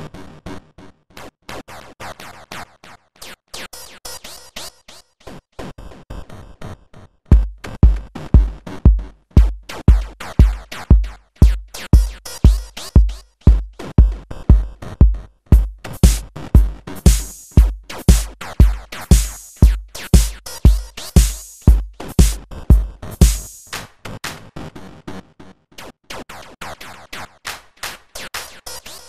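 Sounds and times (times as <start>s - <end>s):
deep kick drum: 7.3s - 23.6s.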